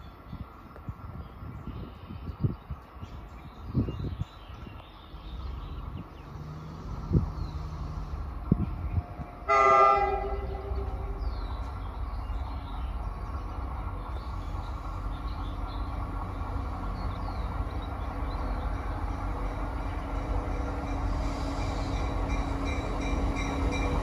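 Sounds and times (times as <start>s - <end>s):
low rumble of train: 0.0s - 24.0s
train horn blast: 9.4s - 11.2s.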